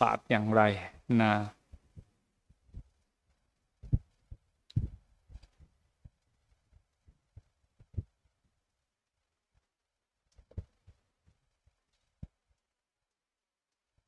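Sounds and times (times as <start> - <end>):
microphone handling thumps: 1.7 - 3.0, 3.8 - 6.2.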